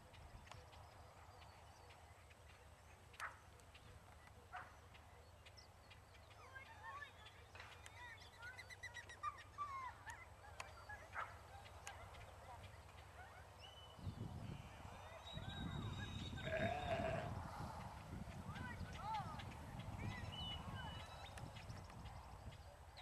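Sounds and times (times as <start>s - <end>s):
faint bird chirping: 0.1s - 17.8s.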